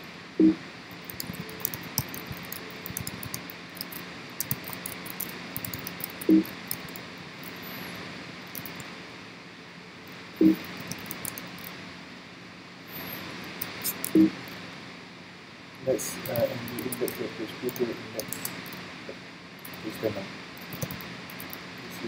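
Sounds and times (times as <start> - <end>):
keyboard typing clicks: 0.4 - 7.8, 8.5 - 8.8, 10.4 - 11.7, 13.6 - 14.3, 16.2 - 18.8, 20.6 - 21.6.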